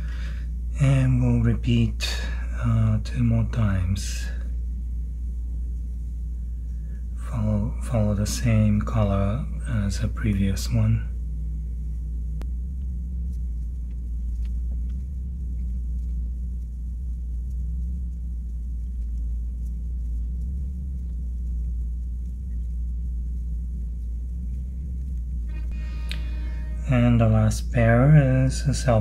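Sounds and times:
low electrical hum: 0.0 - 29.0
faint ticks: 12.4 - 26.3.

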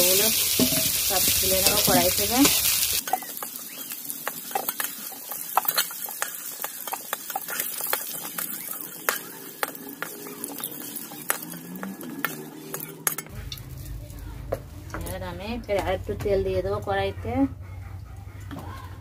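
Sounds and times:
metal spatula scraping in pan: 0.0 - 14.0
hot oil sizzling: 0.0 - 14.2.

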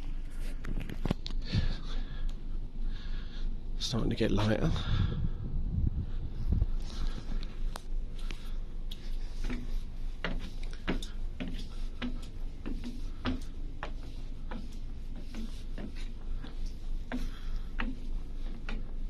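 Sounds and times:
steady low rumble: 0.0 - 19.0
footsteps on metal stairs: 7.0 - 19.0.

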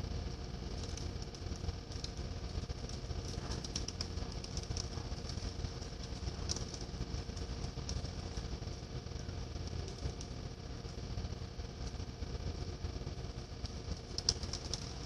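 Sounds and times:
faint clicks: 0.7 - 8.5, 13.6 - 15.0.

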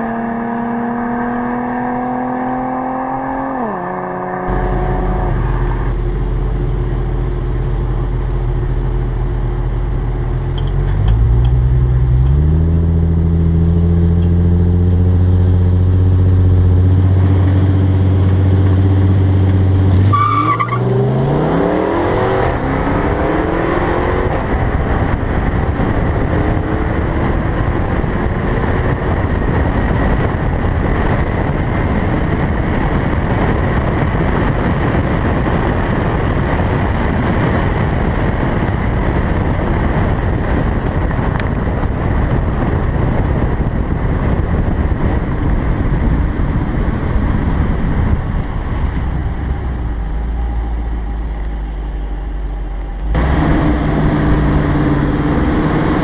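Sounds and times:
car engine revving: 0.0 - 56.0
wind and road noise: 0.0 - 56.0.

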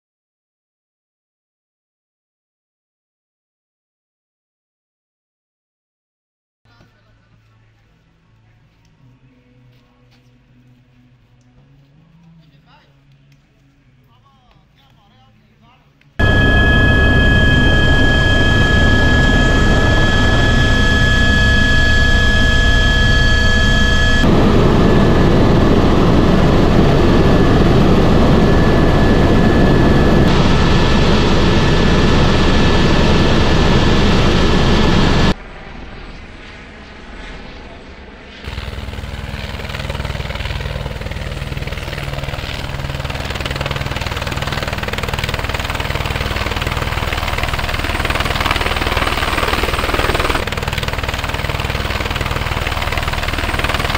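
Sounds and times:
helicopter turbine and rotor noise: 16.2 - 35.4, 36.3 - 53.9.

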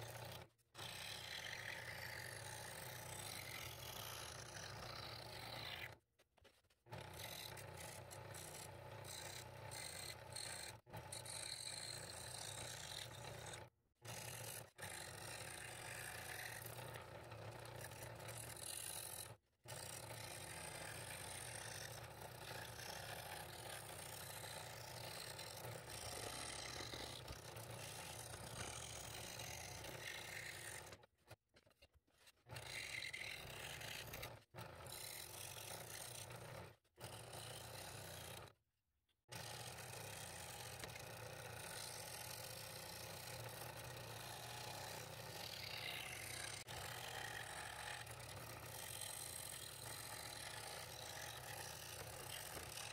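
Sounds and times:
scroll saw cutting wood: 0.0 - 38.6, 39.3 - 52.9.

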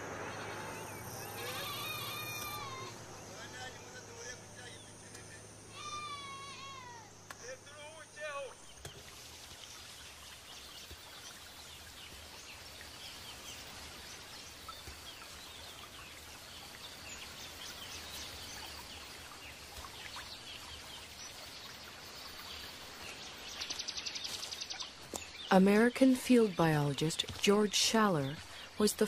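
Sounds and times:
short bird calls: 0.6 - 3.0, 4.7 - 8.6.

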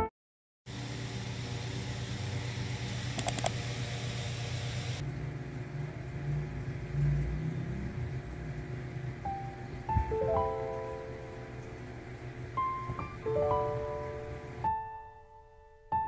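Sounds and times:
low mechanical hum: 0.7 - 14.7
quick clicks: 3.2 - 3.6.

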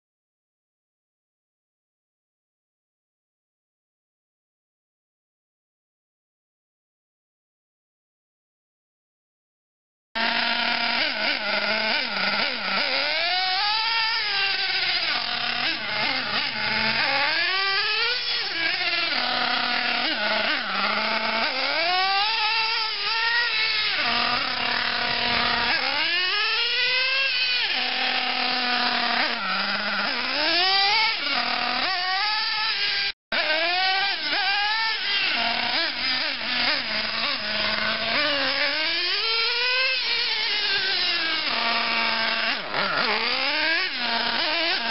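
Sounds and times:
nitro engine whining: 10.2 - 44.9.

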